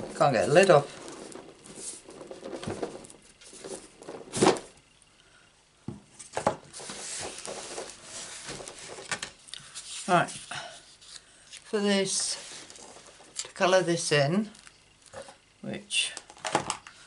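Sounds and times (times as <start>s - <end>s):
cardboard scraping and rustling: 0.0s - 4.8s, 6.2s - 11.2s, 11.8s - 13.4s.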